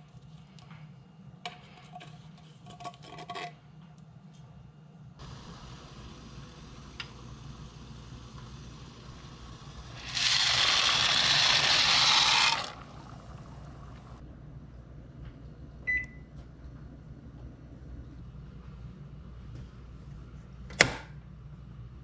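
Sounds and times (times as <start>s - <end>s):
water boiling in a pot: 12.7s - 14.2s
microwave timer beep: 15.9s - 16.3s.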